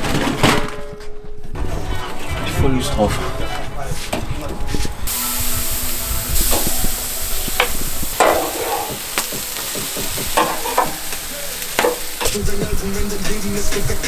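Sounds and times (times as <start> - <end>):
chicken sizzling on a grill: 5.1 - 14.0
metal tongs clinking on grate: 7.4 - 12.4.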